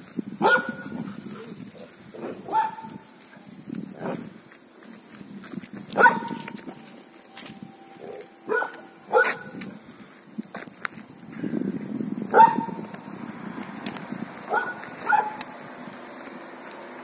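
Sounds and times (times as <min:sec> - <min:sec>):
dog barking: 0:00.4 - 0:01.0, 0:02.2 - 0:03.0, 0:06.0 - 0:06.5, 0:08.5 - 0:09.6, 0:12.3 - 0:12.8, 0:14.5 - 0:15.5.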